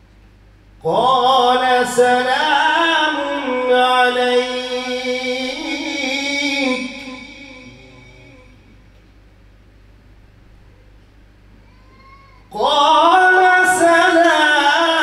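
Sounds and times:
man chanting: 0.8 - 8.8, 12.5 - 15.0.

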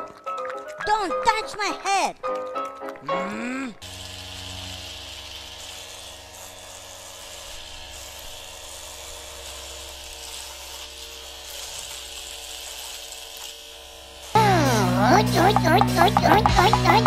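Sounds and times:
small electric motor whirring: 3.8 - 17.0.

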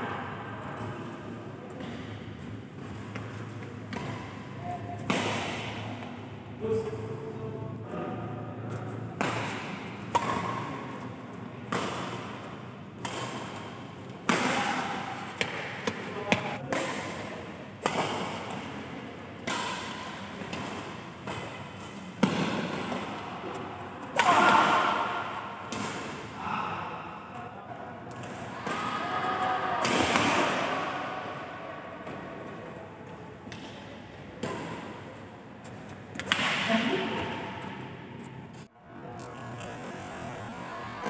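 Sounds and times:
rackets striking shuttlecock: 2.8 - 6.2, 8.7 - 18.8, 19.4 - 26.3, 35.7 - 38.4.

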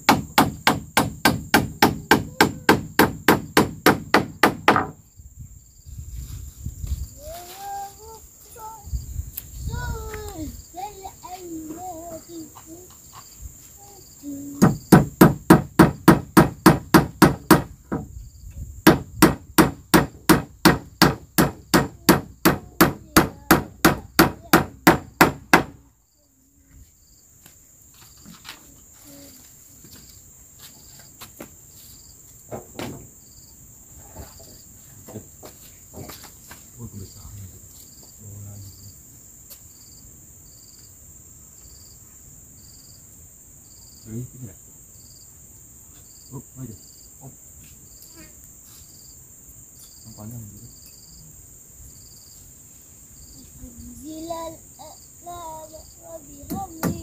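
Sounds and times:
hammering on wood: 0.0 - 5.0, 14.6 - 18.1, 18.8 - 25.8, 56.4 - 57.0
high insect drone: 0.0 - 57.0
faint knocks: 56.3 - 57.0.

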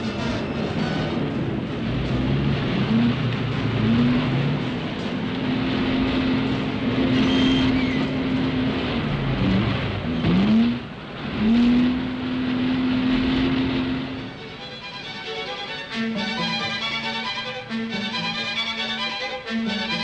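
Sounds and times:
vehicle engine revving: 0.0 - 15.2.

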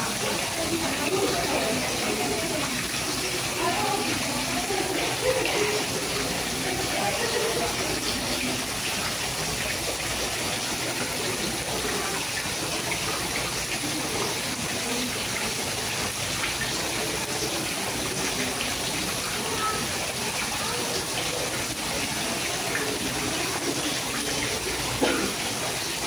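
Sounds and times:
faint voices: 0.0 - 26.0
fountain water splashing: 0.0 - 26.0.

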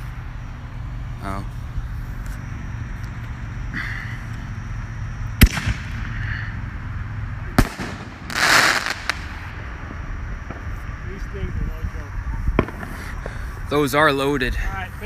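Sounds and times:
firework crackling hiss: 1.4 - 14.0
small firework pops: 5.4 - 6.0, 7.6 - 9.4, 12.5 - 13.3
firework bangs: 5.4 - 6.2, 7.5 - 11.3, 12.4 - 13.4.

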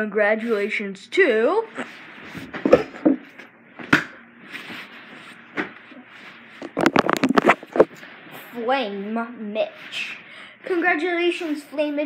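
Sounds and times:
rubbing on camera: 6.0 - 8.5.

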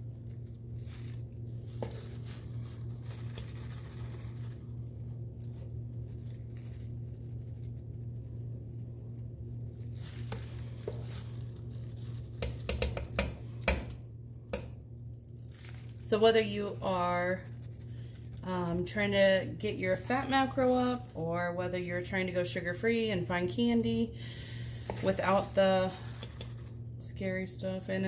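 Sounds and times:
steady low hum: 0.0 - 28.0
metal spoon scraping chocolate mixture: 1.4 - 4.6, 10.2 - 14.7, 24.7 - 28.0.

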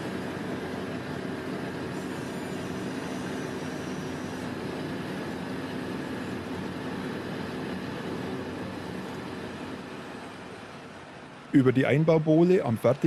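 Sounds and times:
heavy diesel engines running: 0.0 - 13.0.

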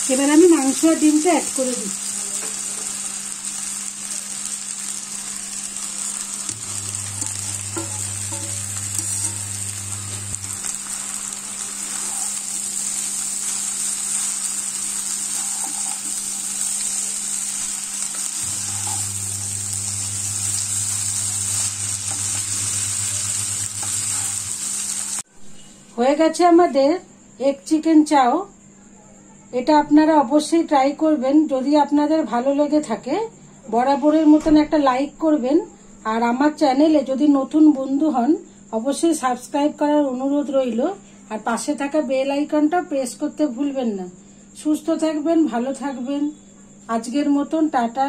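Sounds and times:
noodles sizzling in a frying pan: 0.0 - 25.3
wooden spatula stirring in pan: 6.6 - 24.9.

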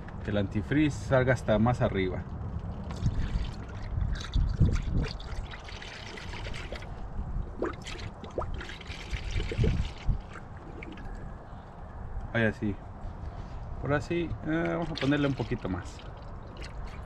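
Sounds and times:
liquid trickling and gurgling into funnel: 2.8 - 11.2, 14.8 - 17.0.

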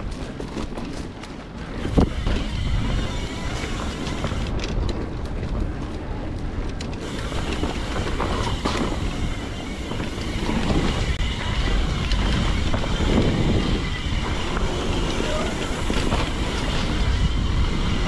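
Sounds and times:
bike ticking and rattling: 0.0 - 18.0
bike tyres on dirt trail: 0.0 - 18.0
wind buffeting microphone: 0.0 - 18.0.

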